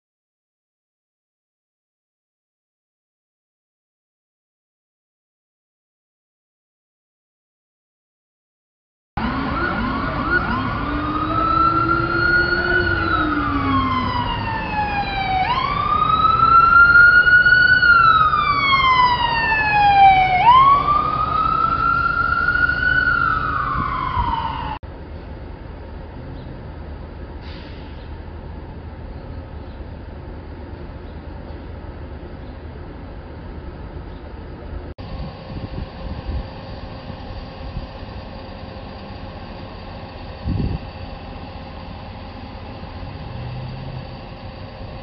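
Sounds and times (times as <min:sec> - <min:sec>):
ambulance siren wailing: 0:09.2 - 0:24.8
lower siren tone: 0:09.2 - 0:24.8
street traffic noise: 0:09.2 - 0:45.0.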